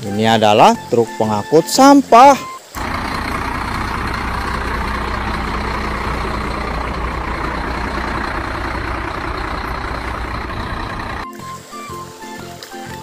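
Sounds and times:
garbage truck engine rumbling: 2.6 - 11.3.

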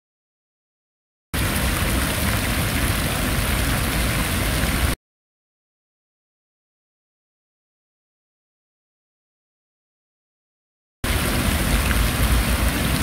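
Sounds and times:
fountain water splashing into pool: 1.4 - 5.0, 11.0 - 13.0.

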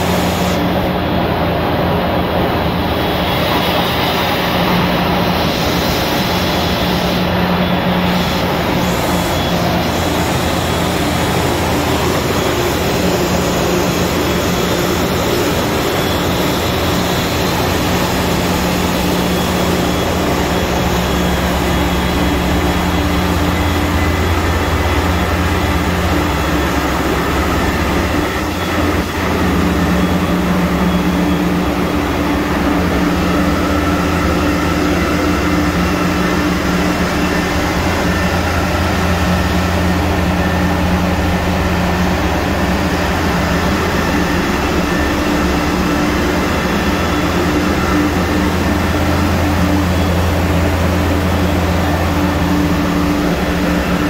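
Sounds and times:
engine room machinery drone: 0.0 - 54.0.

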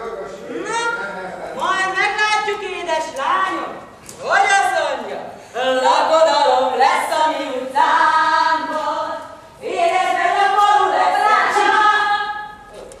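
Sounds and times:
voices singing held notes: 5.6 - 12.9.

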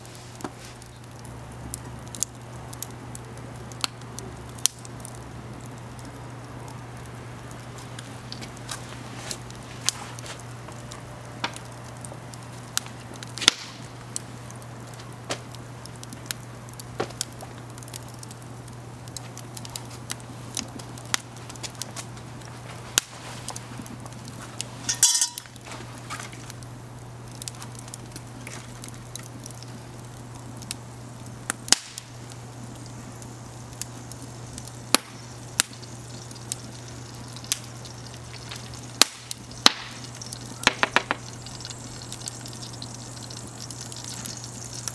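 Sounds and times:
wood fire crackling and popping: 0.0 - 44.9
pot clattering: 24.9 - 25.5.

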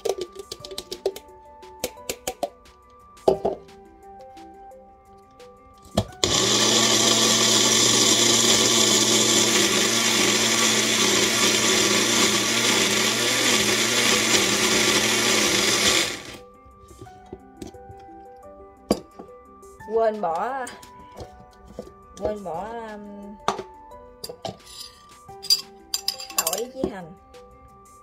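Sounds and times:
blender motor grinding: 6.2 - 16.4.

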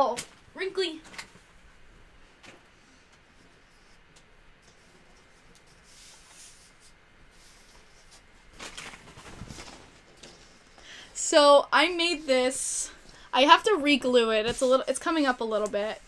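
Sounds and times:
rustling and scraping of poster board: 2.5 - 10.8.

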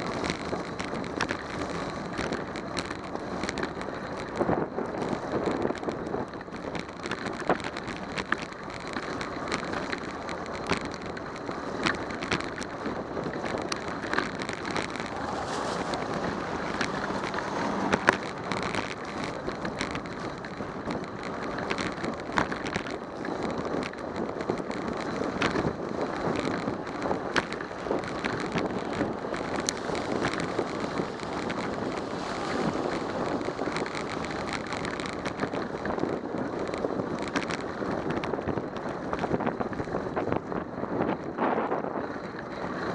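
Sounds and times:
wind on microphone: 0.0 - 42.9
tyres hissing on wet road: 15.1 - 18.6, 29.6 - 33.2.

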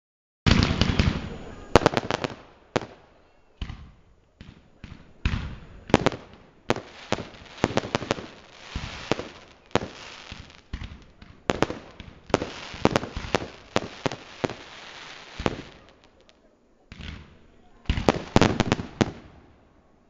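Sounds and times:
fireworks bursting: 0.5 - 19.7
noisy hiss: 0.5 - 20.0.

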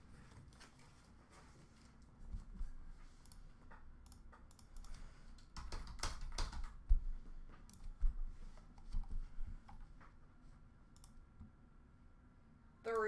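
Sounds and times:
typing on a keyboard: 4.0 - 7.0.

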